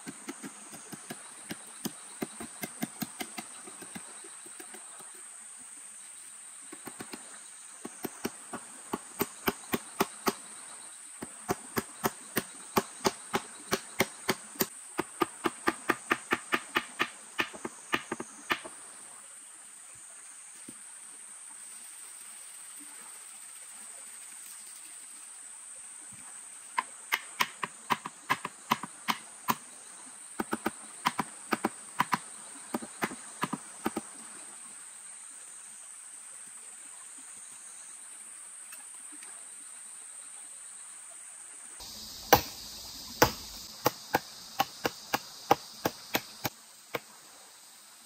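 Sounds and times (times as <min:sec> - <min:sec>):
sharp chopping strikes: 0:08.0 - 0:10.4, 0:11.2 - 0:18.7, 0:42.0 - 0:47.0.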